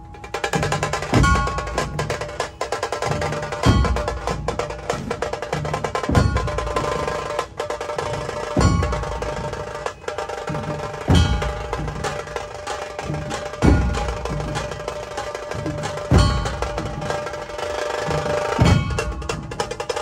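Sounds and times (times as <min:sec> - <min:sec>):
fast percussion rhythm: 0:00.0 - 0:20.0
steady tones: 0:00.0 - 0:20.0
heavy deep drum hits: 0:08.6 - 0:09.5, 0:13.1 - 0:14.8, 0:15.5 - 0:17.2, 0:18.6 - 0:19.7.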